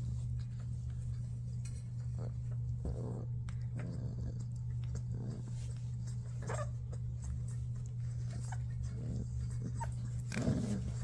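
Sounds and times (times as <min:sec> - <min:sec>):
steady low hum: 0:00.0 - 0:11.0
puppies whimpering and yipping: 0:05.4 - 0:11.0
puppy crying: 0:06.3 - 0:07.2.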